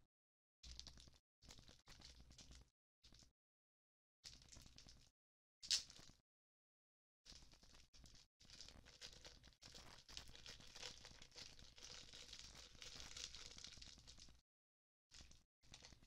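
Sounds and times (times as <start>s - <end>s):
faint crinkling and rustling: 15.1s - 16.0s.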